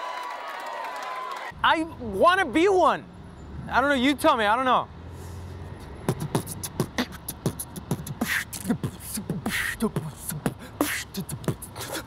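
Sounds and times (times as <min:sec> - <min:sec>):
man beatboxing: 0:05.8 - 0:12.0.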